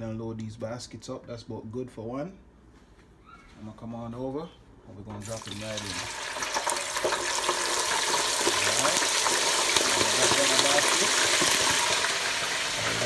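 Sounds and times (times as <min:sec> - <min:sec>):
chicken wings sizzling in hot oil: 0:05.2 - 0:13.0.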